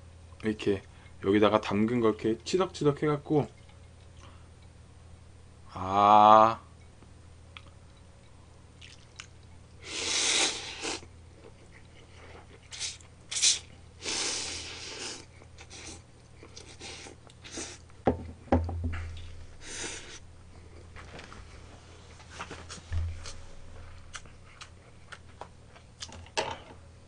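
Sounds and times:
sucking and chewing: 8.8s - 17.9s, 24.0s - 26.2s
low knocks: 22.9s - 23.9s.

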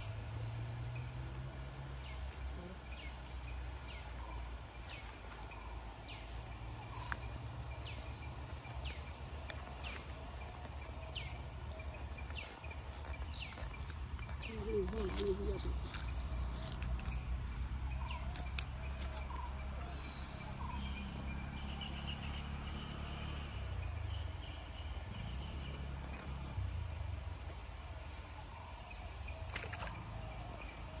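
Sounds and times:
steady low rumble: 0.0s - 22.0s
bird chirps: 0.0s - 31.0s.

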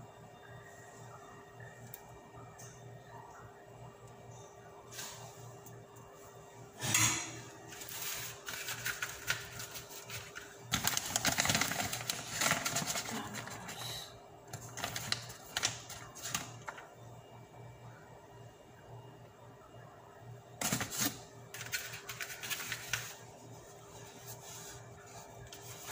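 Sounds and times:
faint steady hum: 0.0s - 25.9s
plastic bag crinkling: 7.8s - 13.8s.

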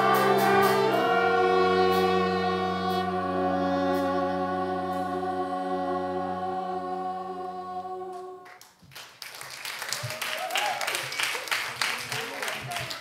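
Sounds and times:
ensemble holding final chord: 0.0s - 8.4s
people clapping: 8.4s - 13.0s.

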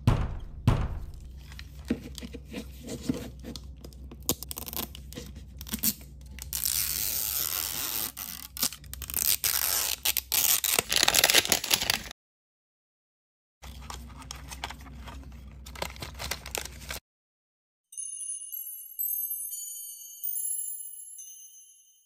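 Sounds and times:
plastic wrapper ripping: 4.2s - 5.0s, 5.6s - 12.1s, 15.7s - 17.0s
plastic wrapper crinkling: 8.1s - 12.1s, 15.6s - 17.0s.

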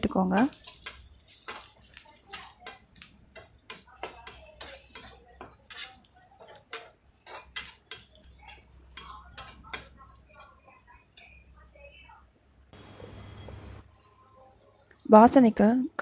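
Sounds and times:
metal spatula scraping a pan: 0.3s - 10.5s.

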